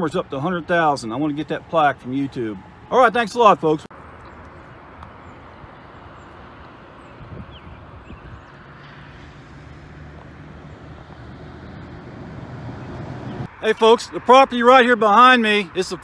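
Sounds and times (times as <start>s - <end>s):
distant traffic rumble: 0.0s - 16.0s
vehicle engine hum: 3.9s - 13.6s.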